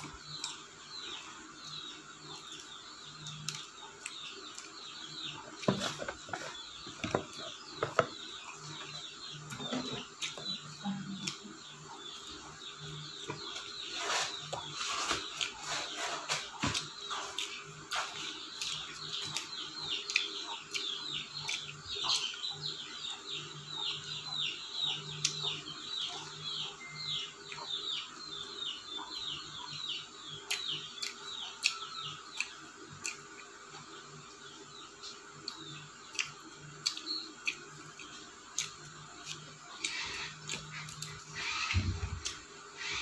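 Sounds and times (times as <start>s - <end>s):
birds chirping: 0.0s - 43.0s
chewing crispy food: 8.4s - 24.1s, 30.3s - 34.0s, 34.9s - 42.9s.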